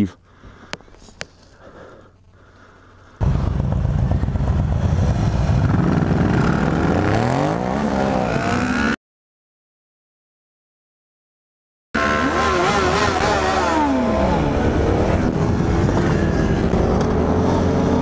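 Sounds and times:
motorcycle engines revving: 3.2s - 9.0s, 12.0s - 18.0s.

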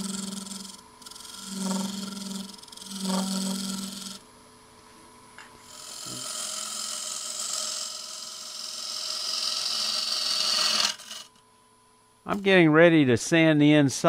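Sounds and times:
lathe tool cutting wood: 0.0s - 4.2s, 5.6s - 11.3s.

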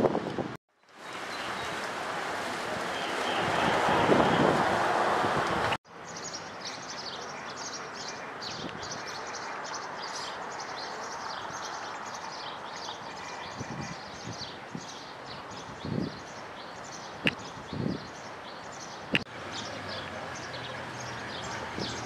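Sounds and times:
wind buffeting microphone: 0.0s - 0.6s, 1.6s - 5.8s, 11.3s - 19.2s, 21.0s - 22.0s
birds chirping: 6.0s - 22.0s.

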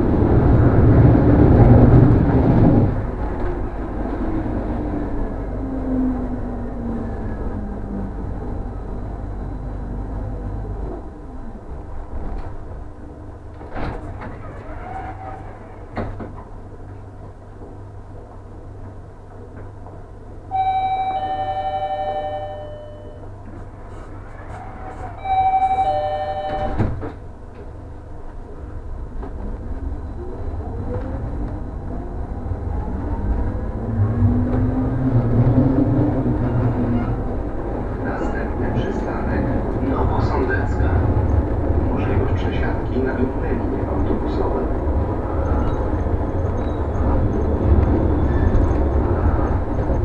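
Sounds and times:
low hum of standing tram: 0.0s - 50.0s
tram motor whine: 0.0s - 50.0s
two-tone door chime: 20.5s - 23.2s, 25.2s - 27.1s.

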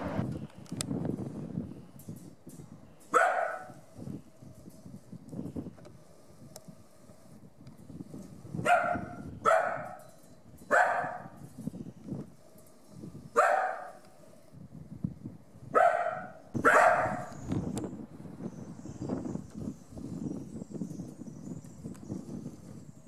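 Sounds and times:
dog barking: 3.2s - 3.8s, 8.6s - 10.0s, 10.7s - 11.4s, 13.4s - 14.0s, 15.8s - 17.3s.

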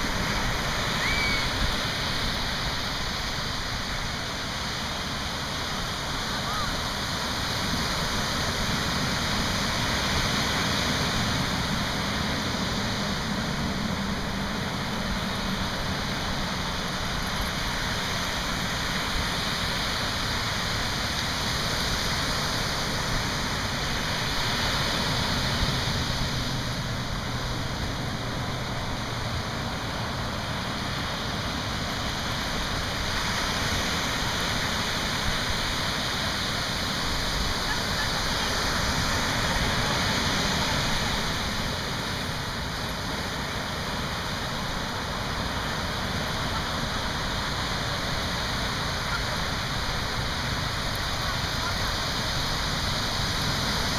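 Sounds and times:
ocean surf breaking: 0.0s - 53.9s.

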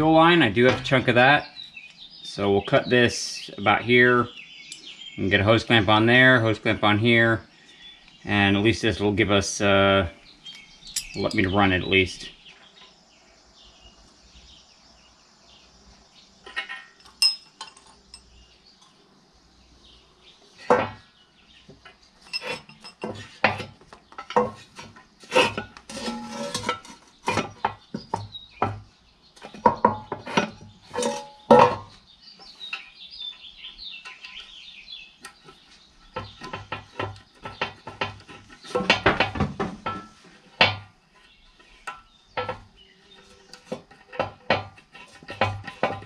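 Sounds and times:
metal tools clinking and knocking: 10.5s - 11.7s, 16.4s - 19.0s, 21.8s - 27.8s, 29.4s - 32.0s, 35.2s - 40.8s.

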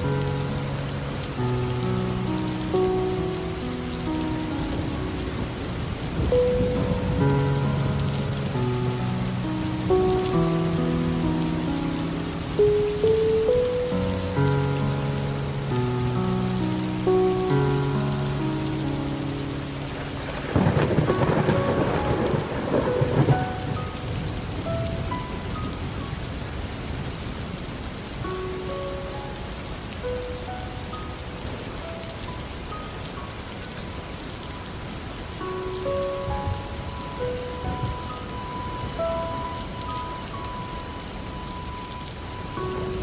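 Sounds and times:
steady rain falling: 0.0s - 43.0s
thunder clap and roll: 20.2s - 24.7s.

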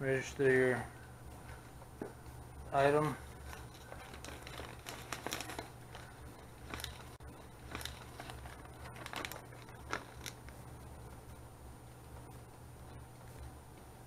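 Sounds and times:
low steady hum: 0.0s - 14.0s
paper rustling and crackling: 3.2s - 10.6s.

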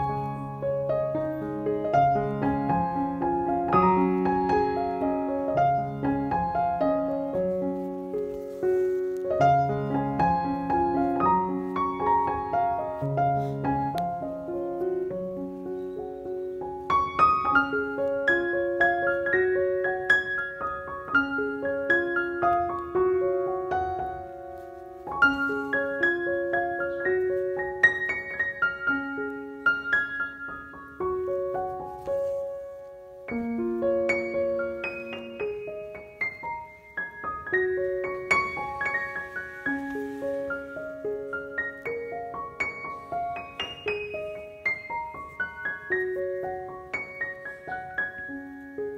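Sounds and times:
piano music: 0.0s - 48.9s.

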